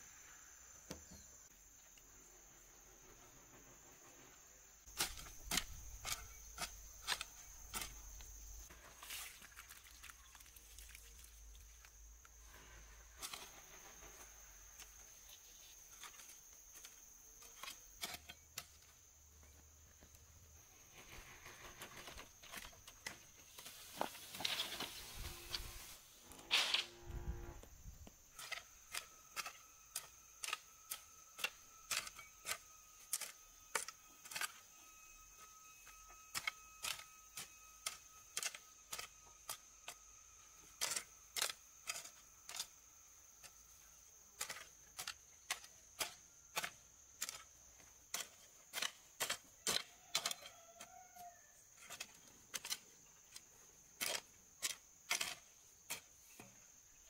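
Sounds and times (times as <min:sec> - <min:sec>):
hoe striking stony soil: 0:04.9 - 0:09.5, 0:15.9 - 0:19.0, 0:28.0 - 0:34.8, 0:35.4 - 0:42.8, 0:43.4 - 0:56.6.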